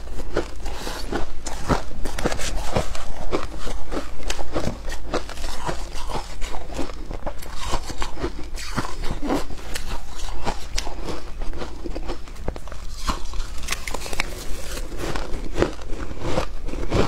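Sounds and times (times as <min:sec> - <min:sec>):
chewing crunchy ice: 0:00.0 - 0:17.0
metal spoon digging through ice: 0:12.8 - 0:17.0.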